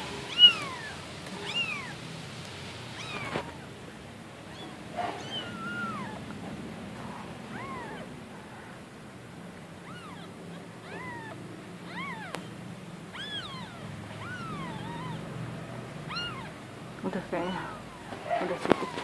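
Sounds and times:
kitten mewing: 0:00.2 - 0:02.0, 0:02.9 - 0:03.8, 0:04.4 - 0:06.4, 0:07.0 - 0:08.5, 0:09.8 - 0:15.4, 0:16.0 - 0:16.6, 0:17.5 - 0:19.0.

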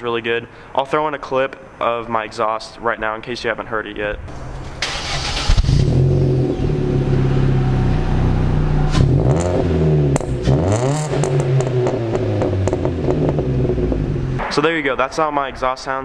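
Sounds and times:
car engine idling and revving: 0:04.3 - 0:14.4.

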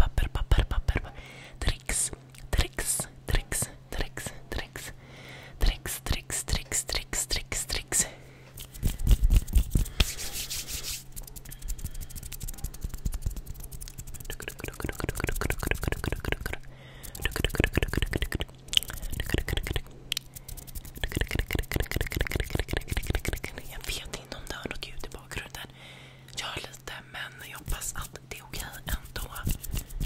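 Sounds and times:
hands rubbing near microphone: 0:08.6 - 0:16.4, 0:17.1 - 0:18.0, 0:22.4 - 0:24.0, 0:27.5 - 0:30.0.

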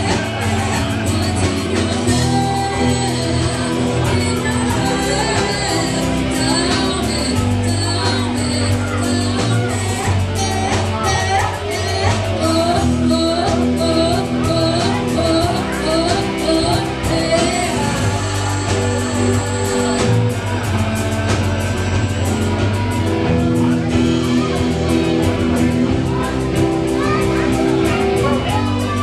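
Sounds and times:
woman singing: 0:00.0 - 0:20.4
bass guitar: 0:00.0 - 0:29.0
drums: 0:00.0 - 0:29.0
electric guitars: 0:00.0 - 0:29.0
keyboard: 0:00.0 - 0:29.0.

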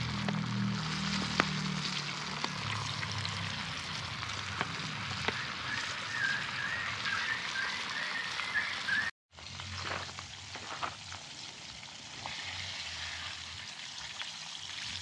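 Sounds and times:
chicken frying in hot oil: 0:00.0 - 0:15.0
warbling whistle: 0:05.1 - 0:09.1.

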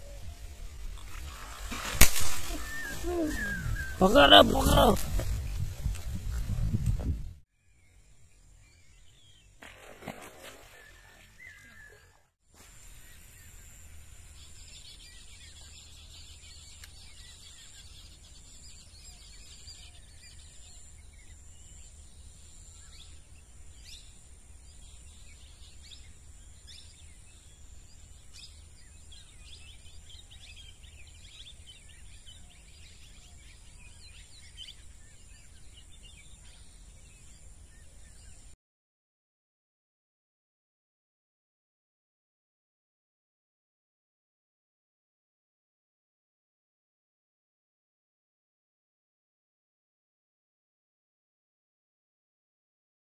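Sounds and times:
bird chirps and calls: 0:02.4 - 0:05.0.

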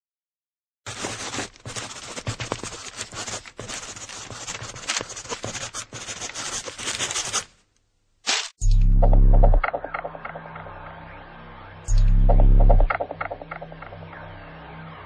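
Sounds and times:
pencil scratching on paper: 0:00.9 - 0:07.5
loud low hum: 0:08.6 - 0:15.0.

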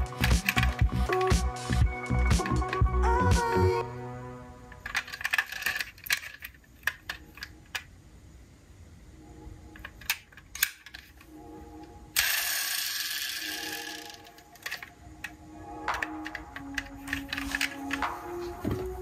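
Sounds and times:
loud packaging rustling: 0:16.0 - 0:19.0.

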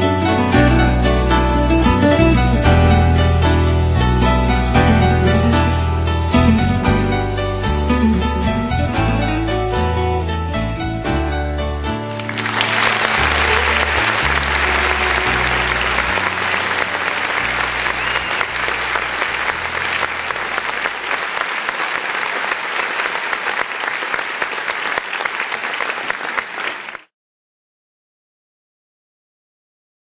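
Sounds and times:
rock band low notes: 0:00.0 - 0:11.7
audience applauding: 0:12.1 - 0:27.1.

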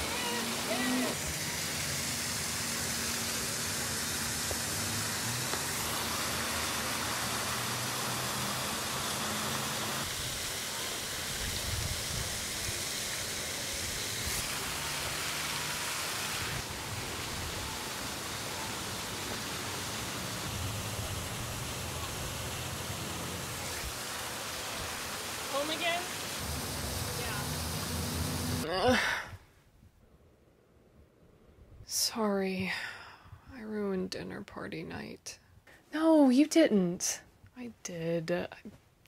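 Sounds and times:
waterfall rushing: 0:00.0 - 0:28.6.

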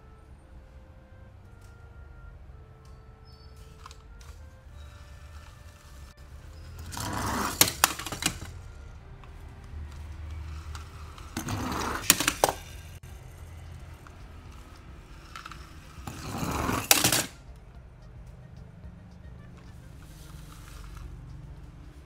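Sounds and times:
toy cars rolling on plastic: 0:03.6 - 0:17.4, 0:20.0 - 0:21.8
plastic and metal clacks: 0:06.8 - 0:12.8.

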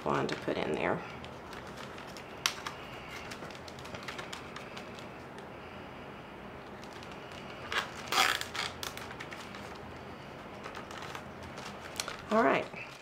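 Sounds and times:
basket clicks and rustles: 0:01.2 - 0:05.1, 0:10.5 - 0:13.0.

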